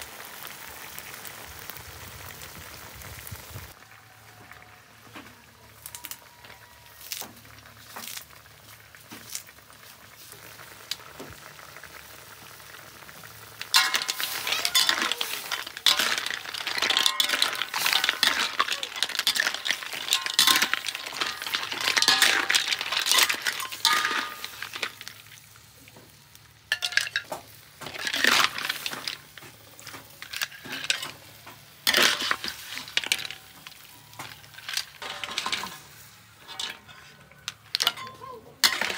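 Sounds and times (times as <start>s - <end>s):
clam shells clattering in wok: 13.3s - 25.4s, 26.7s - 38.9s
metal spatula scraping wok: 13.7s - 25.1s, 26.7s - 38.9s.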